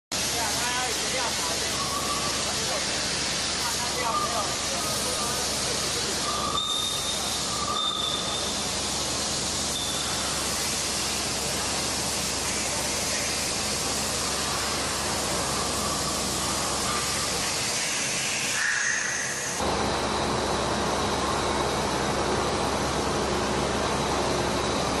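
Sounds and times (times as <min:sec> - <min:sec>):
hissing machinery: 0:00.2 - 0:25.0
faint whistling tones: 0:01.6 - 0:02.8, 0:06.0 - 0:08.7, 0:09.7 - 0:10.4.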